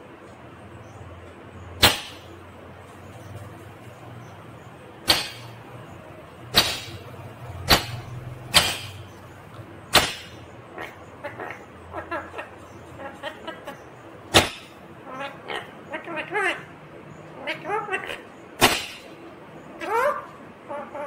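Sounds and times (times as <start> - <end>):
parakeet chattering: 4.2 - 21.0
parakeet screeching: 10.0 - 13.8, 14.4 - 16.7, 17.4 - 19.1, 19.8 - 21.0.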